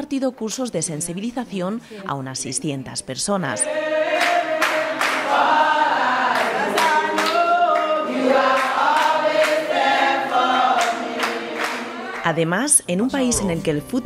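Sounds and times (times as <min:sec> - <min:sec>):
group of people singing: 0:03.6 - 0:12.4
hand claps: 0:04.2 - 0:05.4, 0:06.3 - 0:12.3.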